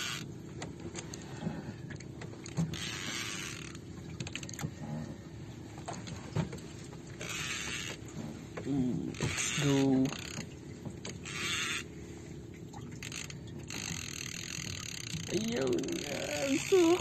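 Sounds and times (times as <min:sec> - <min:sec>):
fishing reel whirring and clicking: 0:00.0 - 0:00.3, 0:02.5 - 0:04.7, 0:07.2 - 0:08.2, 0:09.1 - 0:11.9, 0:12.9 - 0:17.0.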